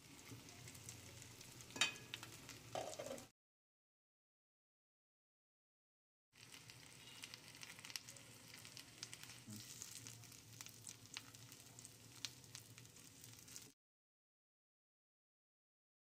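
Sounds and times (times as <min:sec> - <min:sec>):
oil sizzling: 0:00.0 - 0:03.3, 0:06.4 - 0:13.8.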